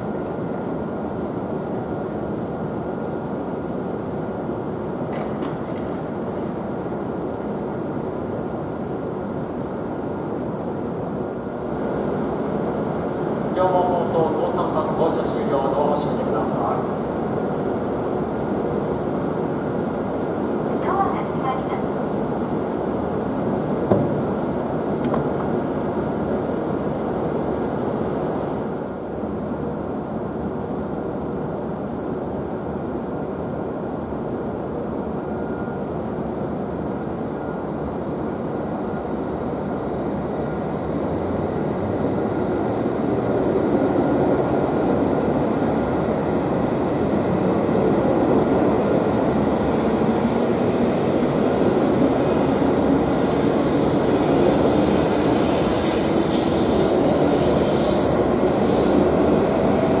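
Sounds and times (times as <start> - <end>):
train running noise: 0.0 - 60.0
airy hiss: 52.3 - 60.0.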